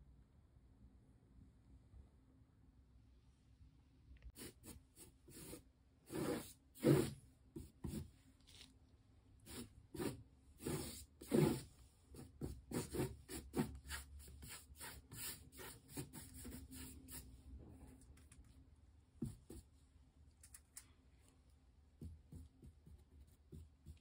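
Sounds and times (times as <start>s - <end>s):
rubbing and scraping: 9.5s - 18.0s.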